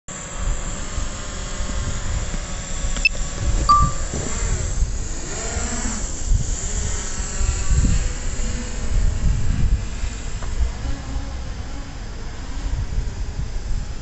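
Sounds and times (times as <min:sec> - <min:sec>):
drone propeller hum: 0:00.1 - 0:14.0
short beep: 0:03.7 - 0:04.1.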